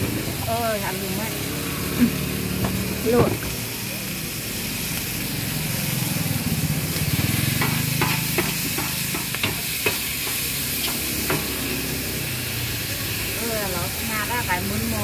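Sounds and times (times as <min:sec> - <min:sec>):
noodles sizzling in a wok: 0:00.0 - 0:15.0
metal ladle scraping wok: 0:06.6 - 0:12.3.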